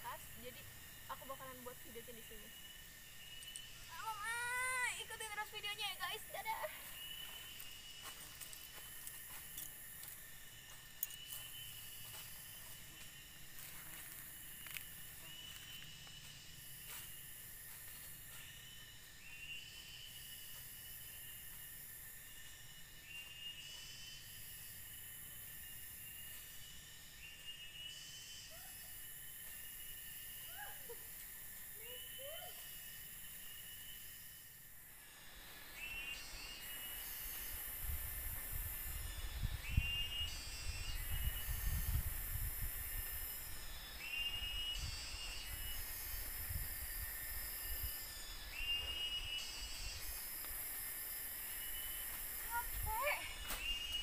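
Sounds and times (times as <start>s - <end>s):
rising trilled insect phrase: 0.0s - 7.8s
cicadas shrilling: 0.0s - 54.0s
insects droning: 0.0s - 54.0s.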